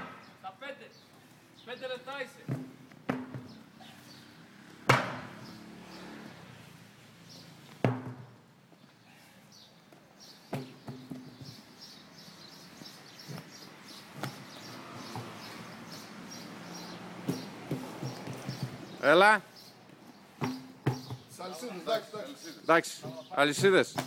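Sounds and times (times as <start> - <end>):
tyre thudding onto asphalt: 2.4 - 3.6, 4.9 - 5.5, 7.8 - 8.4, 10.5 - 12.0, 12.8 - 15.7, 17.2 - 19.0, 20.3 - 21.4, 23.0 - 24.0.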